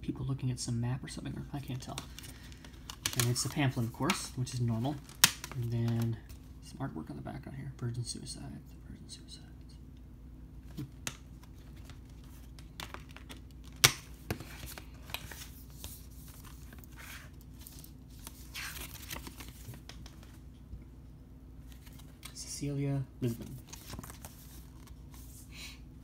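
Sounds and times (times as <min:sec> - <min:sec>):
paper rustling: 0:10.7 - 0:20.4, 0:21.7 - 0:22.4, 0:23.2 - 0:25.4.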